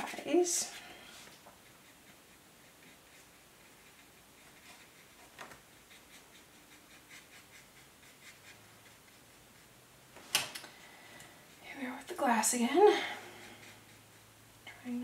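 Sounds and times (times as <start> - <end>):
paintbrush scratching on paper: 0.0 - 9.8, 11.4 - 15.0.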